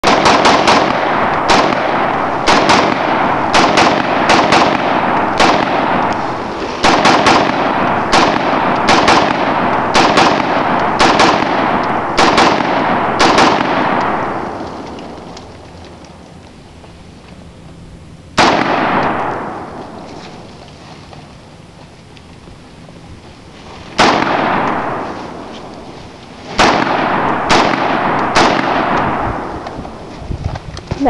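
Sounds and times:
rifle shots: 0:00.0 - 0:15.7, 0:18.4 - 0:20.1, 0:23.9 - 0:30.0.

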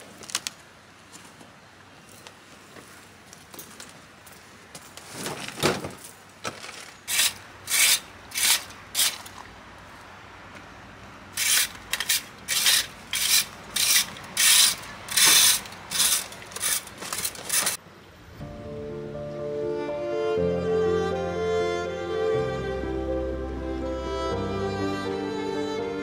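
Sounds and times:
rake scraping over soil: 0:11.4 - 0:17.8.

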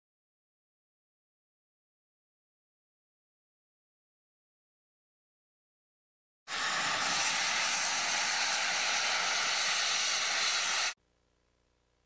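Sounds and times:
steam locomotive venting steam: 0:06.5 - 0:11.0.

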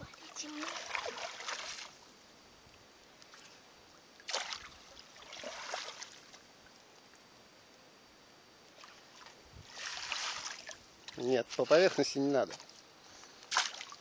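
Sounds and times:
water splashing in a muddy pool: 0:00.1 - 0:02.0, 0:04.2 - 0:06.4, 0:08.8 - 0:12.8, 0:13.5 - 0:14.0
landing net swept through water: 0:04.3 - 0:06.2, 0:08.8 - 0:10.8, 0:13.5 - 0:14.0.

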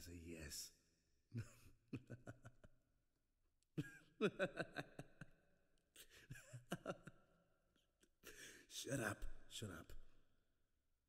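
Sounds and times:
man chuckling: 0:01.3 - 0:02.7, 0:03.8 - 0:05.3.

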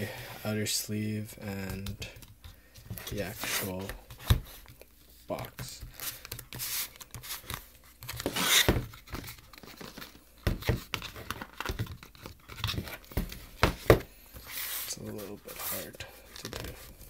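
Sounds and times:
cardboard scraping and rubbing: 0:03.0 - 0:04.7, 0:05.4 - 0:17.0.

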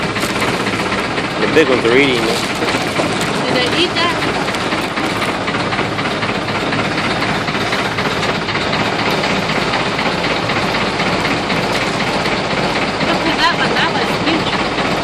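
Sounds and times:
boat engine running: 0:00.0 - 0:15.0
churned water rushing: 0:00.0 - 0:15.0.

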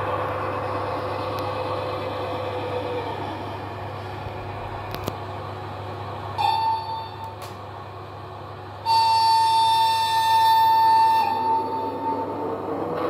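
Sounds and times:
low running hum: 0:00.0 - 0:13.0
model locomotive horn: 0:06.4 - 0:07.3, 0:08.8 - 0:12.4.

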